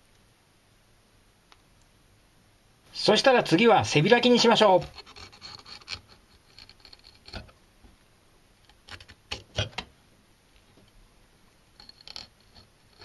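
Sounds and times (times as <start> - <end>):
knife scraping through fish: 4.6 - 7.4.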